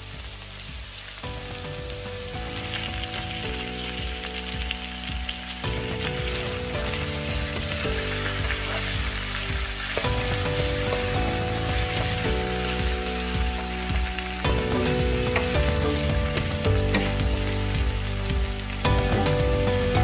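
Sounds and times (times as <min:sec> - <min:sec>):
background music of held chords: 0:00.0 - 0:20.0
food sizzling in a pan: 0:00.0 - 0:20.0
wooden spatula turning food: 0:01.6 - 0:20.0.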